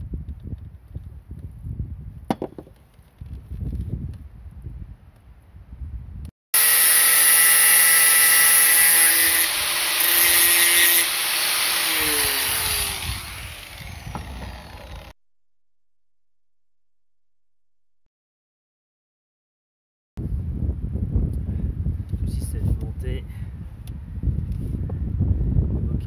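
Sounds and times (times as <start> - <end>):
angle grinder whining: 6.6 - 15.2.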